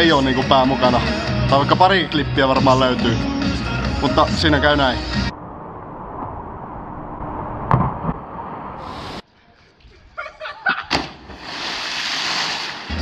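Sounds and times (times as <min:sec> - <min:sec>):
sharp thud: 0:07.6 - 0:08.2, 0:10.9 - 0:11.4
sharp smack: 0:10.9 - 0:11.4.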